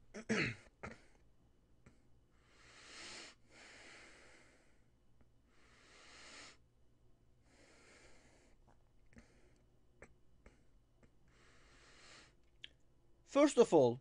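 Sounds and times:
faint breathing: 0:01.8 - 0:06.7, 0:07.4 - 0:09.7, 0:10.4 - 0:12.4.

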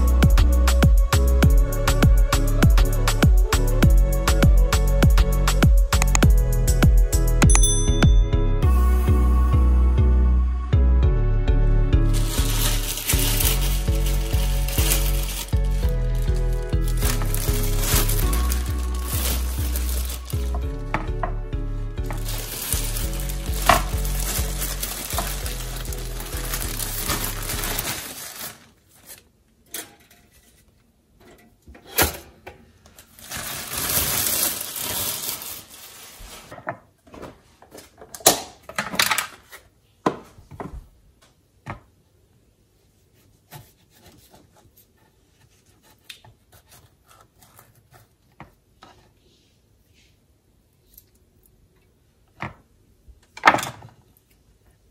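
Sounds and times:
background music: 0:00.0 - 0:27.9
plastic bag rustling: 0:12.1 - 0:20.8, 0:22.1 - 0:29.2, 0:33.0 - 0:36.6.

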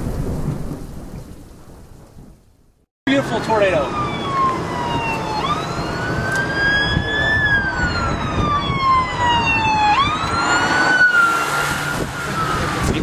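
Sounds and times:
siren wailing: 0:03.1 - 0:13.0.

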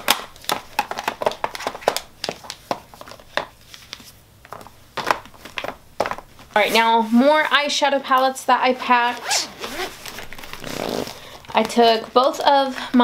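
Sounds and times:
makeup cases clicking and tapping: 0:00.0 - 0:03.6.

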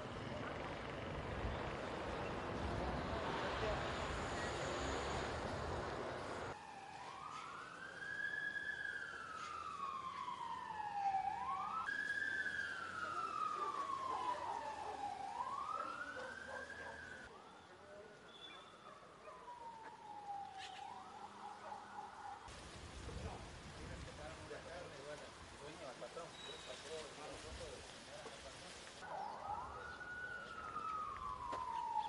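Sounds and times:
rushing street noise: 0:00.0 - 0:17.4
emergency vehicle siren wailing: 0:00.0 - 0:17.8, 0:18.8 - 0:22.5, 0:29.0 - 0:32.0.

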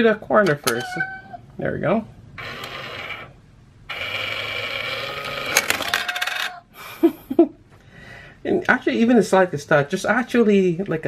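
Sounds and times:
small motor whirring: 0:02.4 - 0:03.3, 0:03.9 - 0:06.5.

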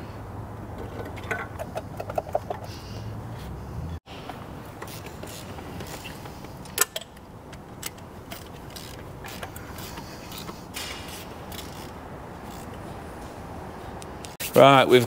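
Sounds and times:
ratchet wrench clicking: 0:04.7 - 0:12.8
metal tools clinking: 0:04.8 - 0:12.8.

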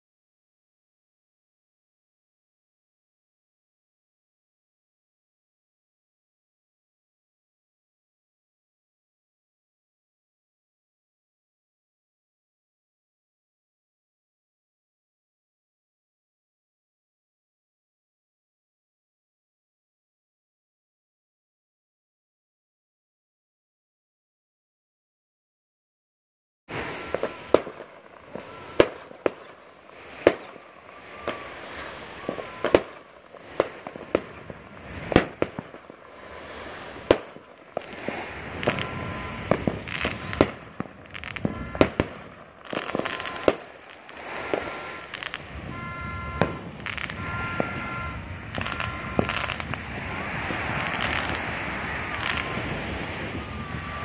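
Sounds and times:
firecrackers crackling: 0:26.7 - 0:54.0
fireworks banging: 0:26.7 - 0:54.0
short steady tones: 0:26.7 - 0:54.0.

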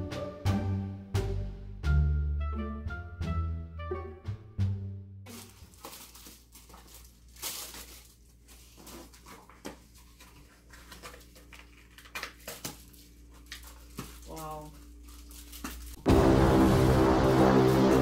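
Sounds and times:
dog tearing and chewing paper: 0:05.3 - 0:16.0
paper rustling: 0:05.3 - 0:16.0.

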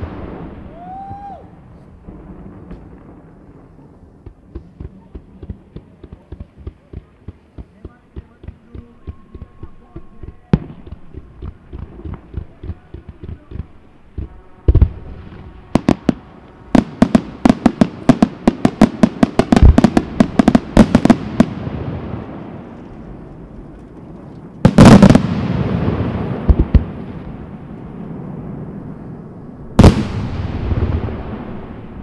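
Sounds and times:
firework pops and crackles: 0:00.0 - 0:27.9
loud firework bang: 0:29.7 - 0:32.0.

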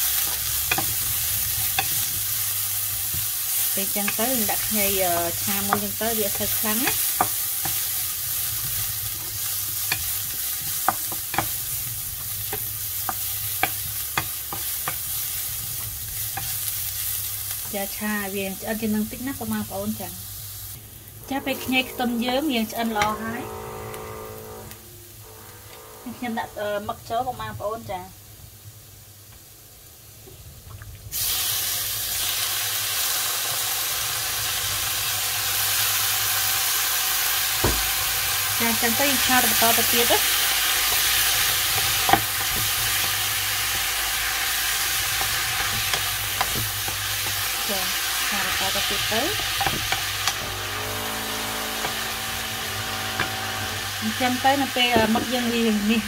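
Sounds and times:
ginger sizzling in a pan: 0:00.0 - 0:56.0
wooden spatula scraping a pan: 0:00.2 - 0:16.7, 0:38.8 - 0:55.4.

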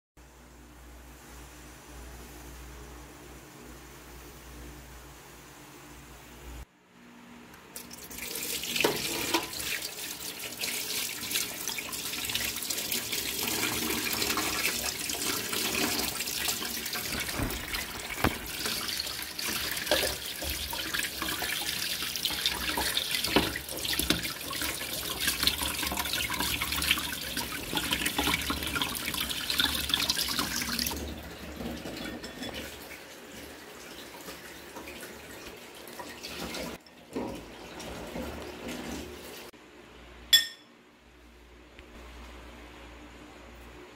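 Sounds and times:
running water splashing: 0:07.8 - 0:39.5.

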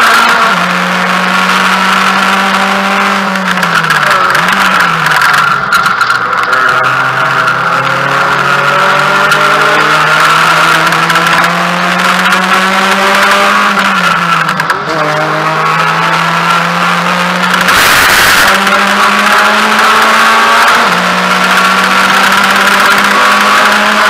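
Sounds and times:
race car engine running hard: 0:00.0 - 0:24.0
burst of rushing noise: 0:17.7 - 0:18.6.

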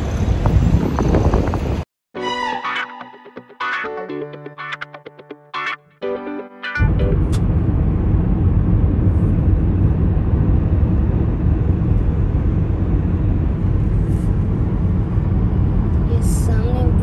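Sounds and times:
car road noise: 0:00.0 - 0:01.9, 0:06.8 - 0:17.0
wind noise: 0:00.0 - 0:01.9.

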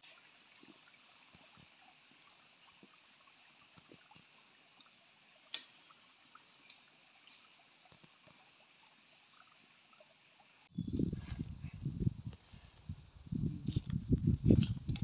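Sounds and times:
light ticks: 0:06.6 - 0:08.4.

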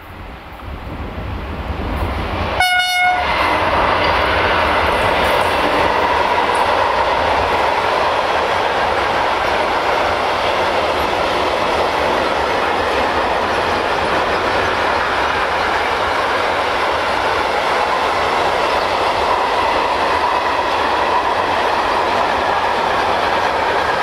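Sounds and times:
freight train wheels on rails: 0:00.0 - 0:24.0
locomotive horn blast: 0:02.6 - 0:03.6.

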